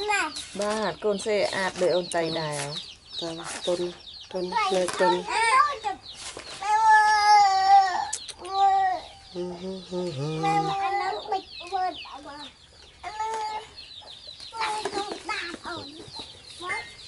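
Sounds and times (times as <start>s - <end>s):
wavering animal calls: 9.0s - 11.4s.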